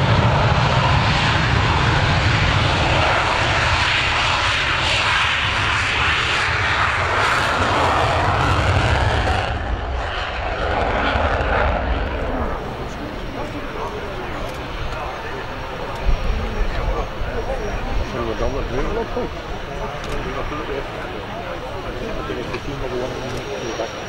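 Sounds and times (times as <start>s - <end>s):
jet fighter roar on takeoff: 0.0s - 24.0s.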